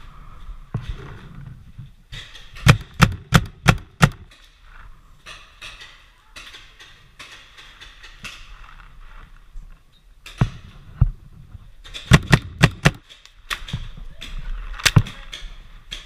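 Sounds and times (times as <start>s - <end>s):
paintball markers firing: 2.5s - 4.3s, 11.9s - 16.0s.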